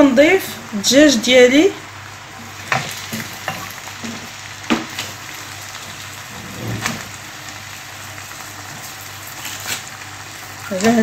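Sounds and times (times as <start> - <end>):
sauce bubbling and sizzling in a pan: 0.0 - 11.0.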